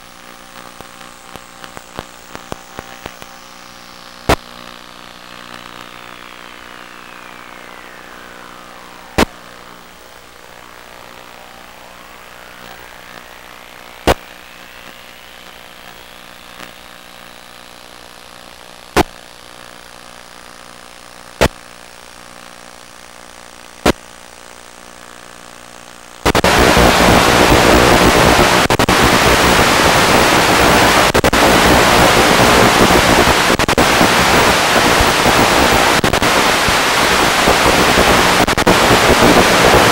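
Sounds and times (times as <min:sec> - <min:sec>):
faint hum of level tones: 0:00.0 - 0:17.0
loud radio static: 0:00.0 - 0:39.9
gliding tones: 0:05.8 - 0:14.1.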